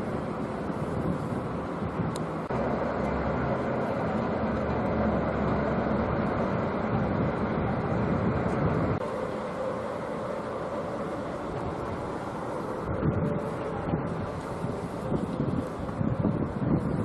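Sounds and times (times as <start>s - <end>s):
train rumbling: 0.0s - 17.0s.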